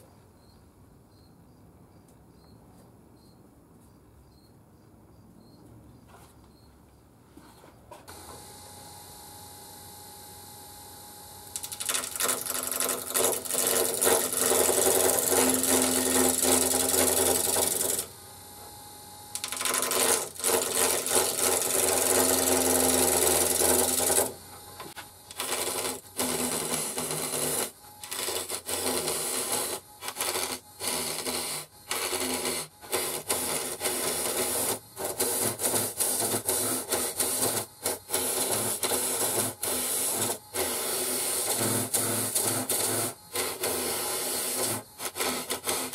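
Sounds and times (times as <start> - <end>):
lathe motor hum: 8.1 - 45.9
lathe tool scraping wood: 11.6 - 18.1, 19.3 - 45.9.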